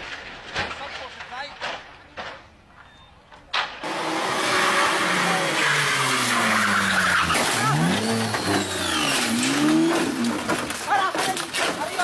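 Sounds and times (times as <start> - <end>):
car engine revving: 3.8 - 10.8.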